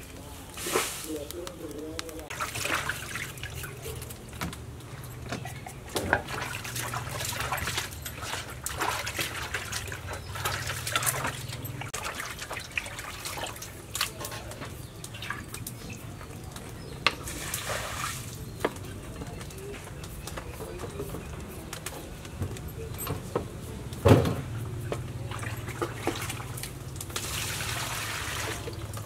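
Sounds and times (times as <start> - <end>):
water sloshing in steel bowl: 2.2 - 18.6, 24.6 - 29.0.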